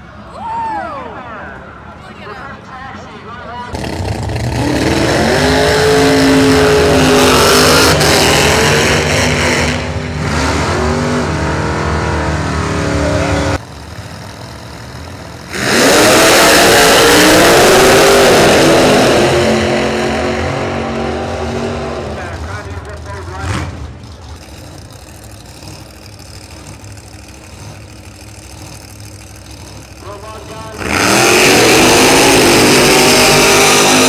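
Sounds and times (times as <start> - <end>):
drag race cars accelerating: 3.5 - 34.0.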